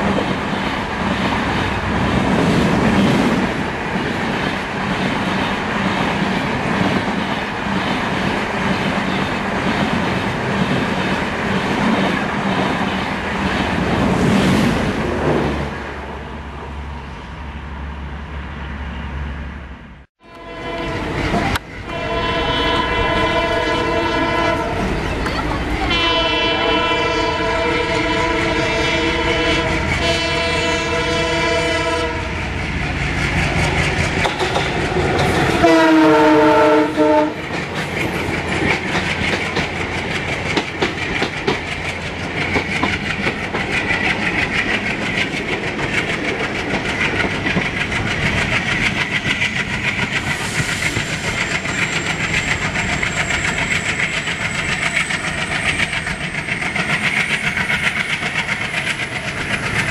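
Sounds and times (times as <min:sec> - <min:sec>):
locomotive horn: 0:20.2 - 0:25.0, 0:25.8 - 0:32.4, 0:35.5 - 0:37.5
train wheels clattering on rail joints: 0:32.0 - 0:59.9.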